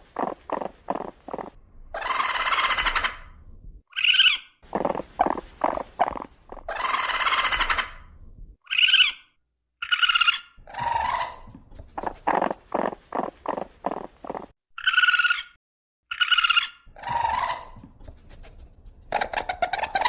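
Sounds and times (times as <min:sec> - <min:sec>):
raccoon screeching: 0:01.4 - 0:03.3, 0:03.9 - 0:11.6, 0:14.8 - 0:15.5, 0:16.1 - 0:18.2, 0:19.1 - 0:20.0
raccoon high whining calls: 0:01.9 - 0:03.3, 0:05.2 - 0:08.1, 0:09.9 - 0:11.5, 0:16.2 - 0:17.8.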